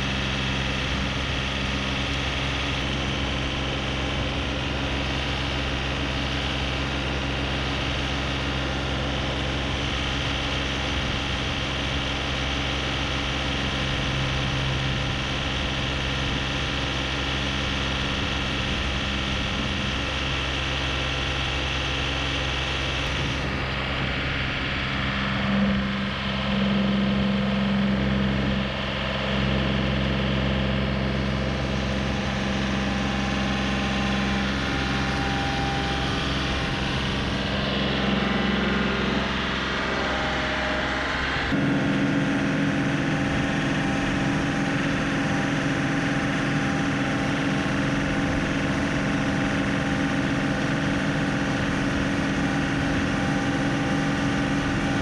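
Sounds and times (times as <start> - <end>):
tractor diesel engine idling: 0.0 - 55.0.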